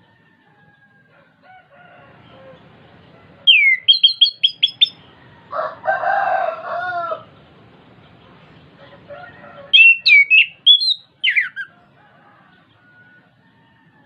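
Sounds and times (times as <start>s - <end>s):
thrush singing: 1.6s - 13.4s
lower harsh bird call: 3.4s - 5.2s, 9.6s - 11.8s.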